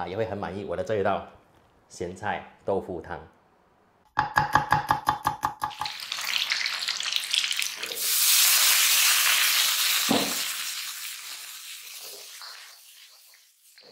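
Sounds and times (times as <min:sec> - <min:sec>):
food sizzling in hot oil: 0:05.6 - 0:13.9.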